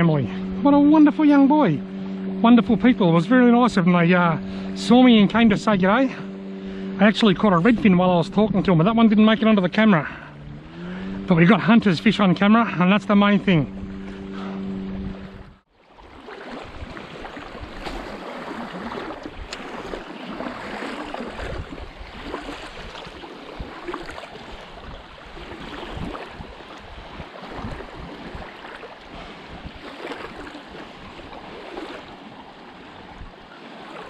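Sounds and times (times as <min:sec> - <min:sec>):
small waves lapping: 0:00.0 - 0:34.0
wind buffeting microphone: 0:10.4 - 0:34.0.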